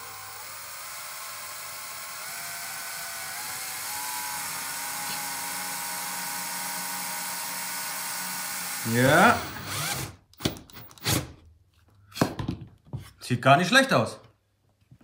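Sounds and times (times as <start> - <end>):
cordless drill motor whine: 0.0 - 10.1.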